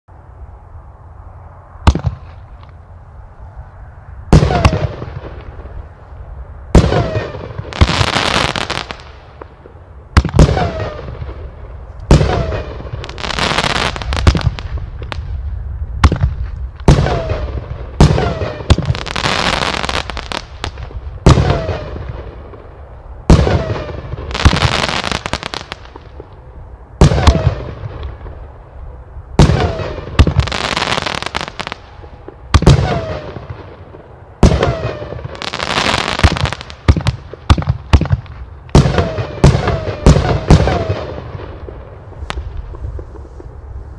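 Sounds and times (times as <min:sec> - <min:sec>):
firework crackling: 0:04.3 - 0:43.9
firework shot bangs: 0:10.2 - 0:11.3.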